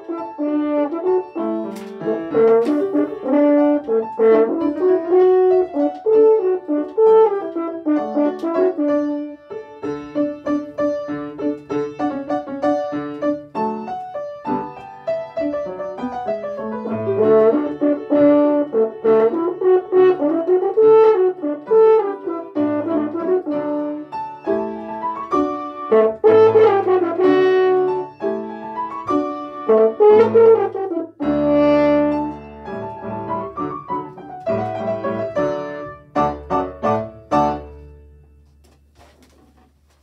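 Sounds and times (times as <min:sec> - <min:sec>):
french horn playing a tune: 0:00.0 - 0:09.5, 0:16.8 - 0:24.2, 0:25.5 - 0:28.6, 0:29.3 - 0:33.4.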